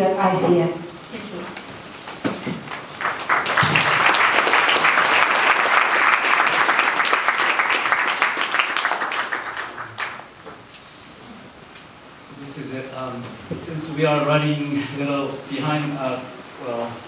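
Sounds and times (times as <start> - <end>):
audience applauding: 2.1 - 10.7.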